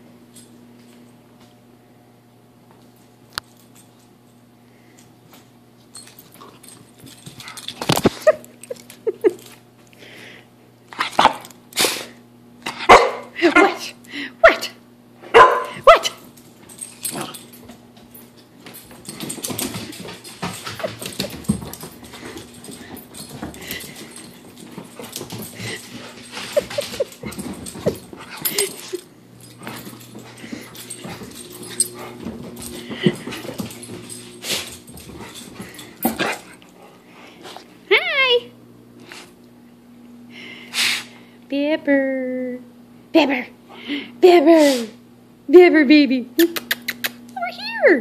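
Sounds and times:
dog paws scrabbling and thumping: 5.2s - 9.8s, 15.4s - 37.8s
dog barking: 12.9s - 13.8s, 15.3s - 16.2s.

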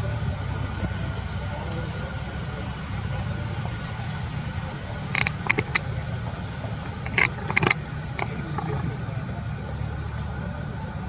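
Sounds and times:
steady low hum: 0.0s - 11.0s
sharp clicks and crackles: 5.1s - 5.9s, 6.7s - 8.9s.

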